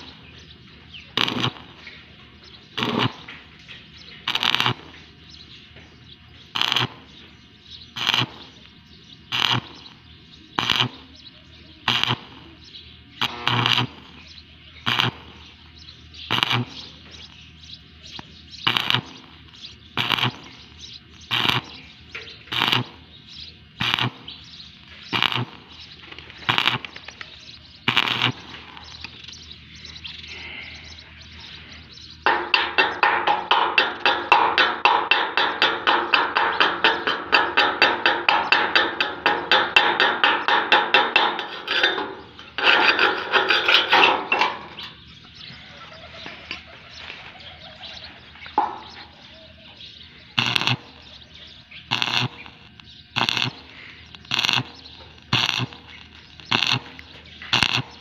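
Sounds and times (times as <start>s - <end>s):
welding arc bursts: 0.0s - 5.6s, 6.4s - 30.6s, 32.2s - 45.0s, 50.2s - 58.0s
chipping hammer tapping steel: 1.1s - 1.8s, 18.1s - 23.0s, 32.2s - 44.9s, 50.4s - 51.1s, 51.9s - 58.0s.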